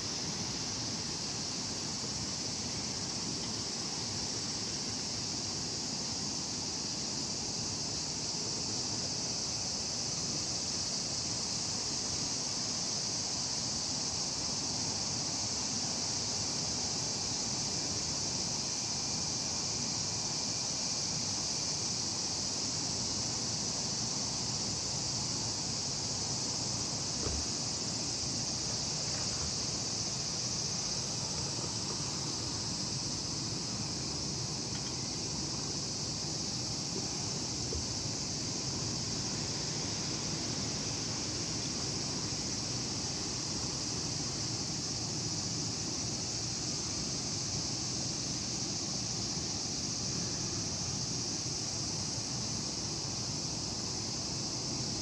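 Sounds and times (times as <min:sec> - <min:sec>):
insect chorus: 0:00.0 - 0:55.0
faint knock: 0:27.2 - 0:27.6.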